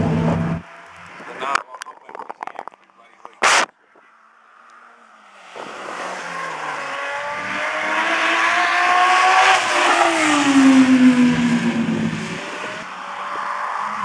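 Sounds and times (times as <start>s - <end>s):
car driving past: 4.4s - 14.0s.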